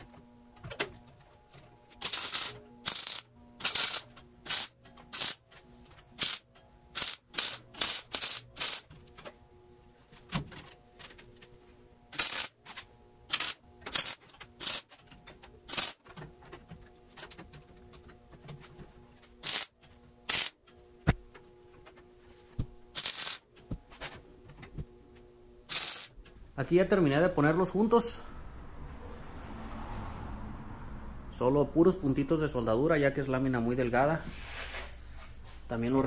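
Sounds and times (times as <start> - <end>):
welder crackling bursts: 2.0 - 5.5, 6.2 - 8.9, 12.1 - 12.6, 13.3 - 15.0, 15.7 - 16.1, 19.4 - 20.6, 22.9 - 23.5, 25.7 - 26.2.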